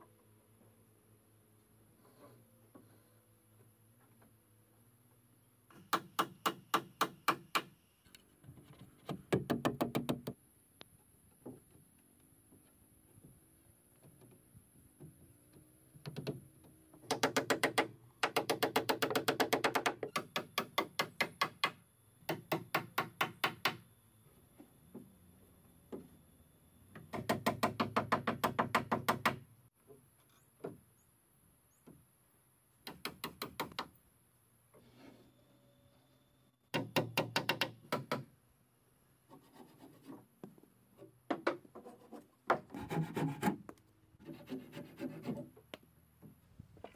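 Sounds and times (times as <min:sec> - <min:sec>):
hammer driving nails into wood: 0:05.7 - 0:07.7, 0:36.7 - 0:38.3.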